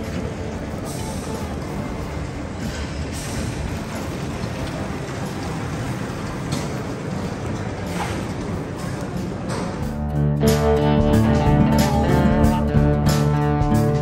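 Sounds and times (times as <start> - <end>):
low rumbling hall noise: 0.0 - 14.0.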